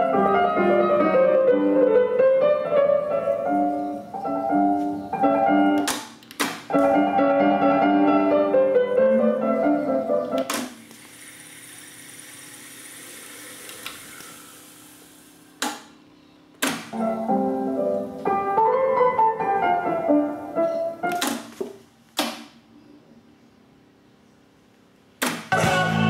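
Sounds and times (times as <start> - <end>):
keyboard music from tape: 25.5 - 26.0.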